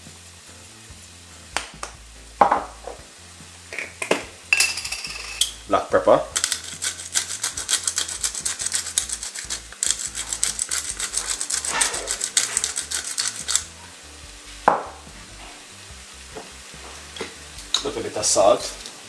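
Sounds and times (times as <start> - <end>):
pepper grinder clicking: 6.3 - 13.7.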